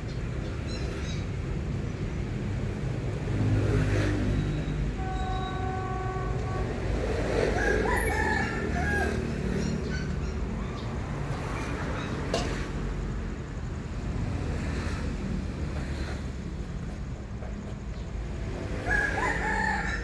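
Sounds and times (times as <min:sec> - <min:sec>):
diesel locomotive engine rumbling: 0:04.1 - 0:20.0
locomotive horn: 0:04.8 - 0:07.4
rooster crowing: 0:07.4 - 0:09.7, 0:18.8 - 0:20.0.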